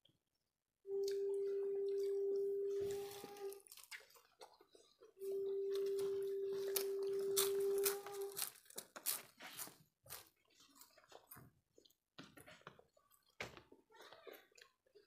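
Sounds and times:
people chewing food: 0:00.0 - 0:15.0.

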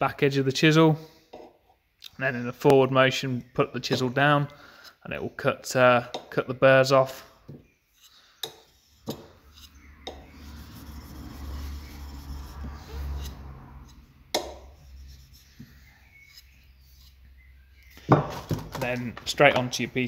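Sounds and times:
chisel scraping on sharpening stone: 0:07.9 - 0:17.3.

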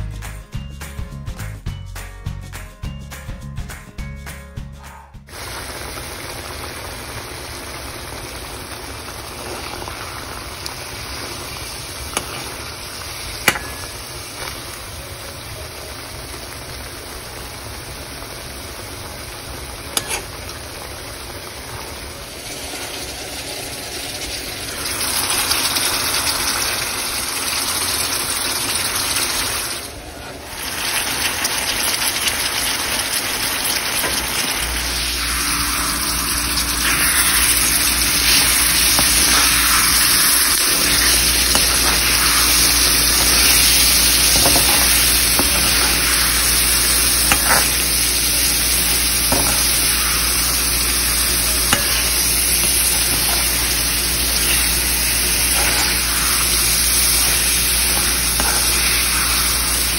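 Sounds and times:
chicken sizzling in gravy: 0:05.3 - 0:59.9
steel spoon clicking on pan: 0:51.7 - 0:53.5, 0:57.9 - 0:59.0.

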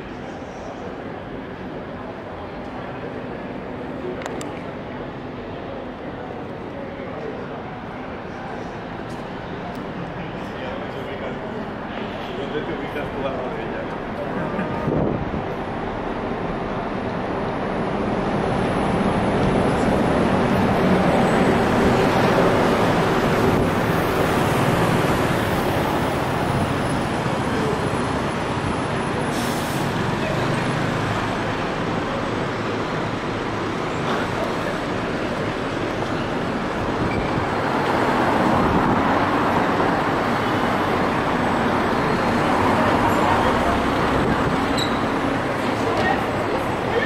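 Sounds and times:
traffic road noise: 0:00.0 - 0:47.0
bus air brake hiss: 0:29.2 - 0:30.1.

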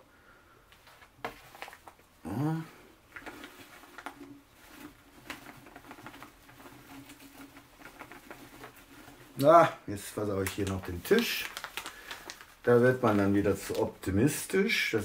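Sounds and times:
plastic bag crinkling: 0:00.7 - 0:15.0
person humming or grunting: 0:02.2 - 0:02.9.

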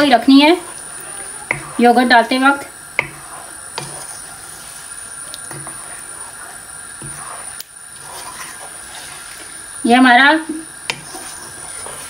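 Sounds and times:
spatula stirring sauce in pan: 0:00.0 - 0:12.0
steady hiss: 0:00.0 - 0:12.0
spatula knocking against pan: 0:01.5 - 0:01.8, 0:03.0 - 0:03.2.

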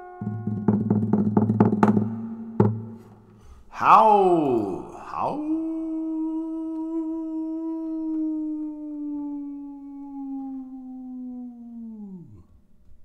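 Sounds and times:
man howling like a wolf: 0:03.7 - 0:12.6.

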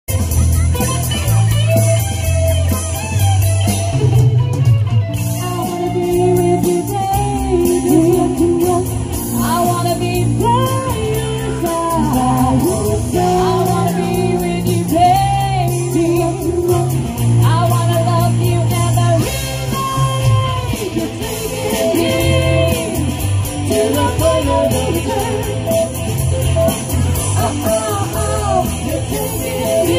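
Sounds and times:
drums: 0:00.0 - 0:29.9
electric guitars: 0:00.1 - 0:29.9
keyboard: 0:00.1 - 0:29.9
women singing: 0:05.4 - 0:26.1, 0:27.3 - 0:29.9.

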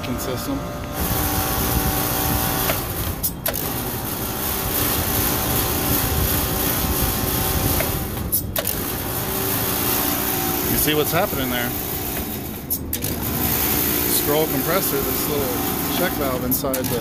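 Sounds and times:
freezer compressor humming: 0:00.0 - 0:17.0.

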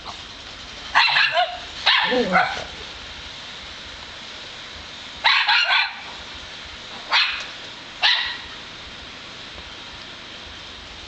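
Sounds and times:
dog barking: 0:00.9 - 0:02.7, 0:05.2 - 0:06.0, 0:07.1 - 0:08.5.

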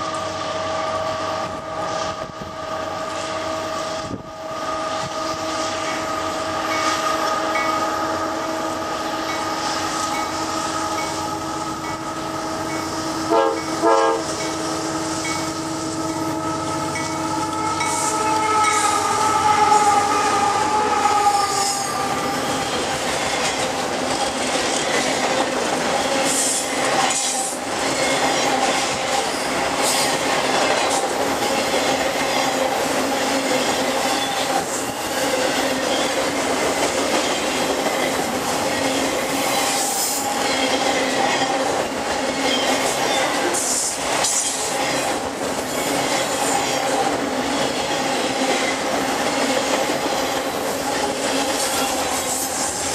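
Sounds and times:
train cars rumbling past: 0:00.0 - 0:52.9
locomotive air horn: 0:00.5 - 0:22.9
wheels clicking over rail joints: 0:20.4 - 0:52.9.

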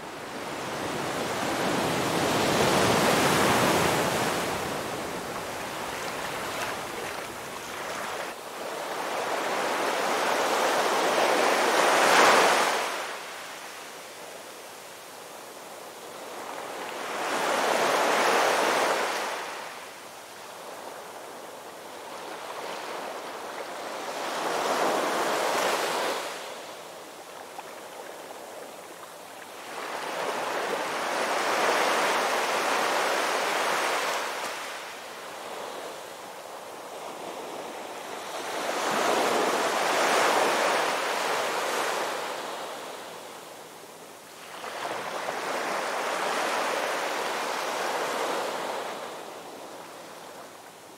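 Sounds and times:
ocean surf breaking: 0:00.4 - 0:08.3.

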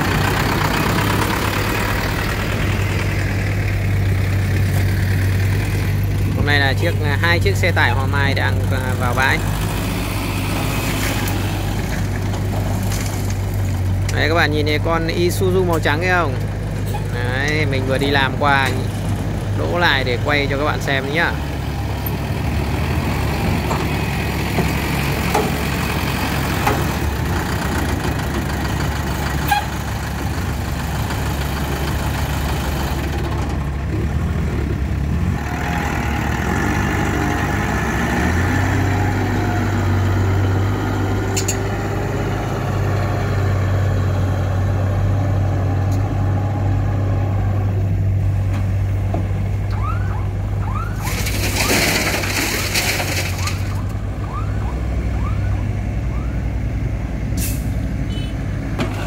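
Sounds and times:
diesel trucks driving past: 0:00.0 - 0:59.0.

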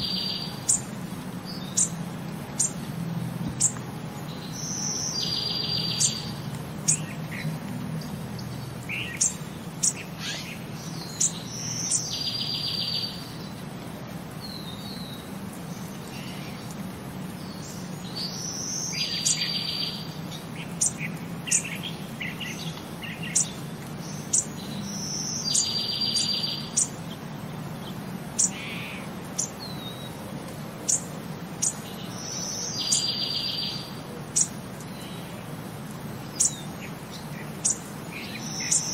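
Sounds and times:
bird chirps: 0:03.6 - 0:13.5, 0:17.5 - 0:27.0, 0:30.9 - 0:35.2, 0:36.3 - 0:38.9.

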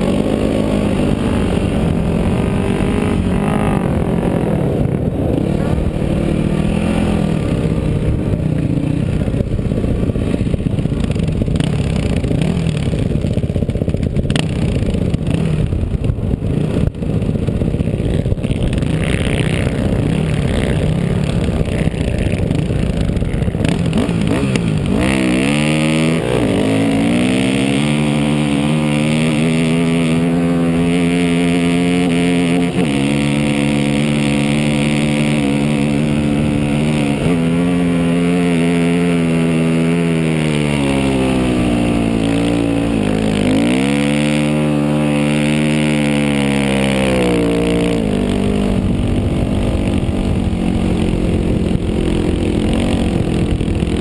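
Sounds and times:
motorcycle engine at full throttle: 0:00.0 - 0:54.0.

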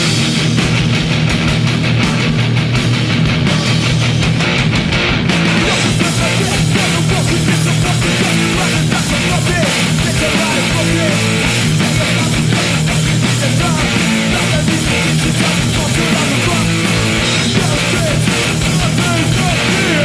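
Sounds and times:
punk band playing live: 0:00.0 - 0:20.0.

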